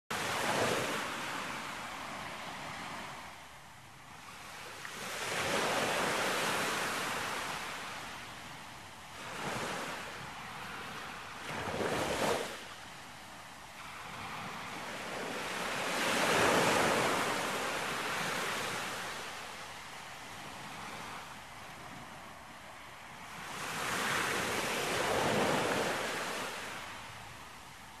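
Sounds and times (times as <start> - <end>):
surf washing onto beach: 13.8 - 19.8, 23.2 - 27.4
wind on microphone: 13.8 - 27.4.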